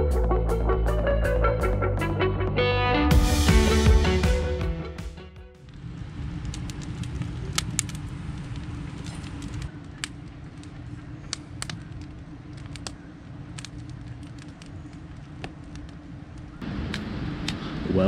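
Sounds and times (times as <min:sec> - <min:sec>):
steady low rumble: 0:03.1 - 0:18.0
campfire crackling and popping: 0:05.6 - 0:17.6.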